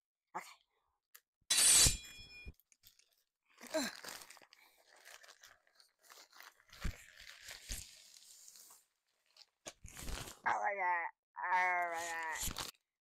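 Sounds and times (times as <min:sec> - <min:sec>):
plastic bag rustling: 0:02.7 - 0:10.4
plastic mailer tearing: 0:03.8 - 0:08.5, 0:09.3 - 0:10.4, 0:12.0 - 0:12.8.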